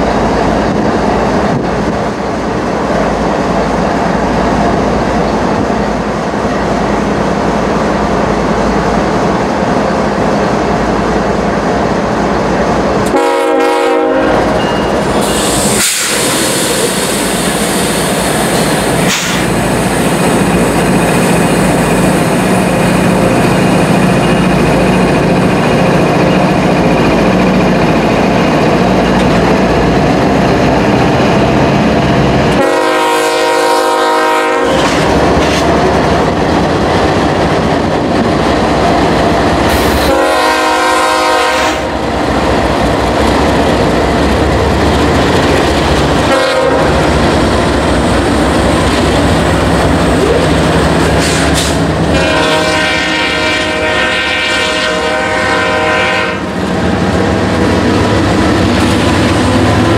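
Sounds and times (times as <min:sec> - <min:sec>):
diesel locomotive drone: 0:00.0 - 0:59.9
train horn blasts: 0:13.1 - 0:14.6, 0:32.5 - 0:34.9, 0:39.9 - 0:42.0, 0:46.3 - 0:47.0, 0:52.1 - 0:56.6
loud hiss: 0:15.0 - 0:23.1.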